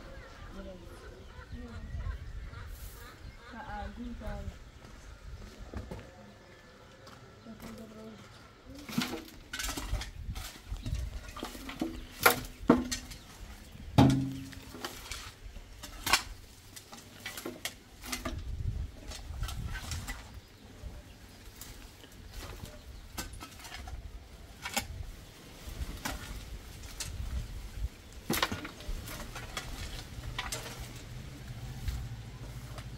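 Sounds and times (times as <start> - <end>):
dirt tipped into metal wheelbarrow: 13.9 - 20.4, 25.8 - 32.9
shovels scraping the ground: 14.4 - 18.3, 25.5 - 32.9.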